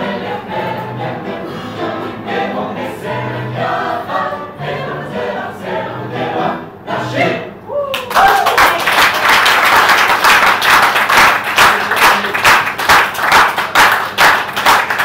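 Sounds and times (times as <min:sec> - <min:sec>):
audience applauding: 0:07.9 - 0:15.0
rhythmic clapping in unison: 0:08.0 - 0:15.0.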